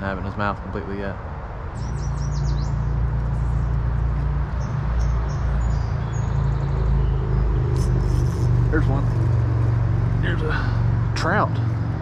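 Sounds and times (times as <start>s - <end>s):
engine low rumble: 0.0s - 12.0s
faint bird chirps: 4.5s - 9.5s.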